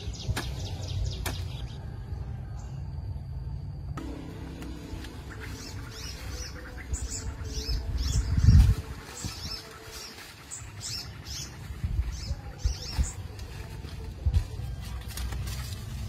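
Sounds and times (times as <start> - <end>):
small birds chirping: 0.0 - 1.8, 4.6 - 14.0.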